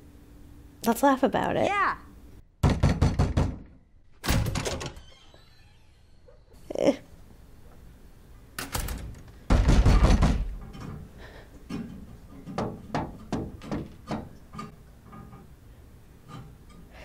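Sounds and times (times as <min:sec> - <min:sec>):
sharp knocks on a window: 0:02.6 - 0:03.7, 0:09.5 - 0:10.6, 0:12.6 - 0:14.4.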